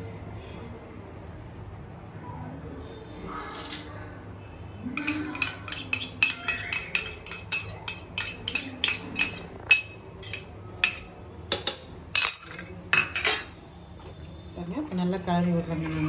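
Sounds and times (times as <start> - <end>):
steel bowl clinking on pot: 5.0 - 13.6.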